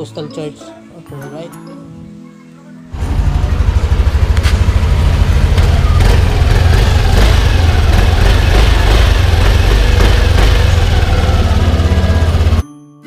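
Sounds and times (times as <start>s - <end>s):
small engine idling: 3.0s - 12.6s.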